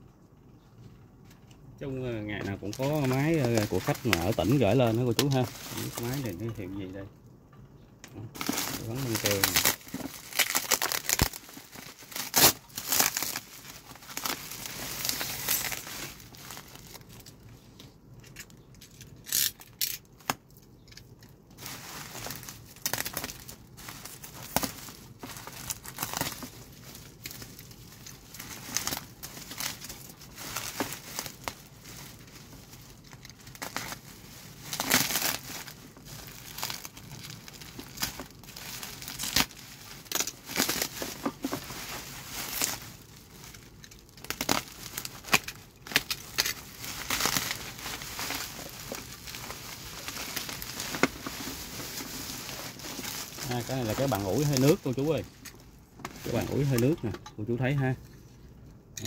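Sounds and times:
bubble wrap crinkling: 1.8 - 7.1, 8.2 - 58.6
taped plastic tearing: 2.4 - 6.4, 8.4 - 17.3, 19.1 - 20.5, 21.6 - 57.0.

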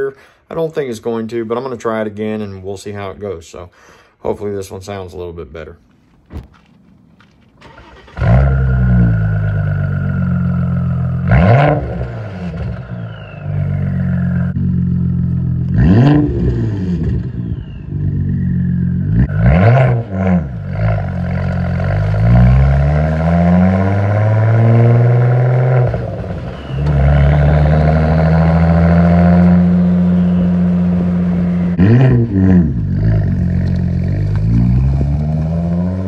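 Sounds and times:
car engine revving: 6.0 - 36.0.

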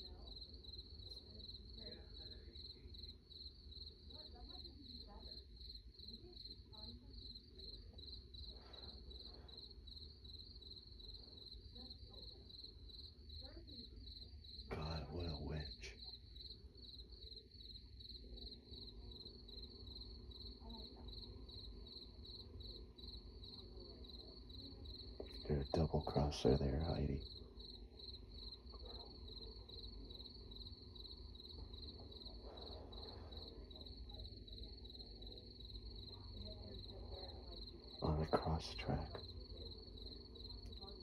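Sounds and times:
crickets chirping: 0.0 - 41.0
faint low hum: 0.0 - 41.0.

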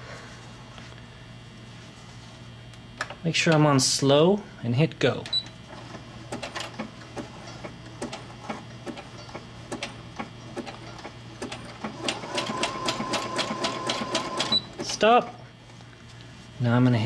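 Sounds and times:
sewing machine motor hum: 9.7 - 15.2.

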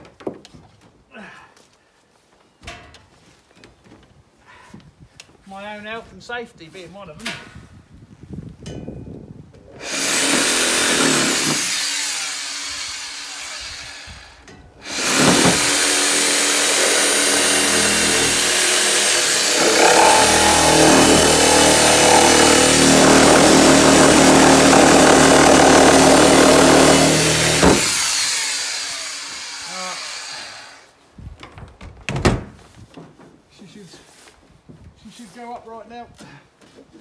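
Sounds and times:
reciprocating saw cutting: 9.8 - 30.9.

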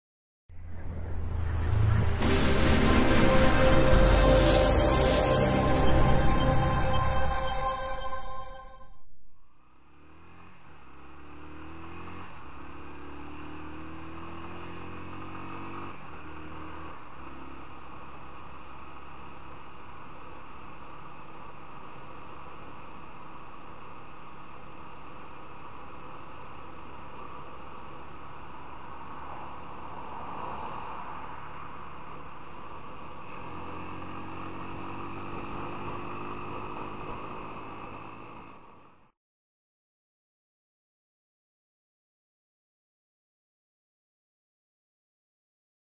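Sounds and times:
road and wind noise: 0.5 - 5.3, 9.4 - 39.1
low engine hum: 0.5 - 7.0
intro music: 0.6 - 9.0
motorcycle engine accelerating: 9.6 - 21.3, 32.8 - 39.1.

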